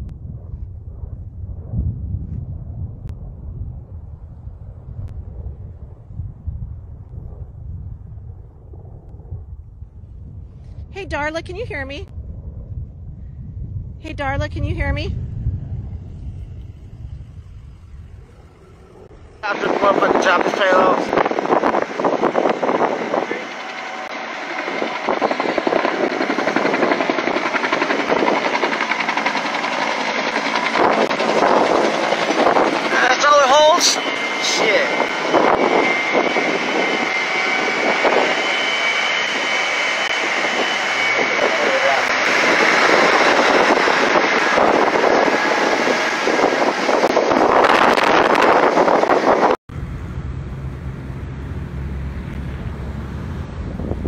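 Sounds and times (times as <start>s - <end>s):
helicopter rotor chopping: 8.2s - 12.2s, 14.0s - 54.0s
loud steady engine: 47.9s - 54.0s.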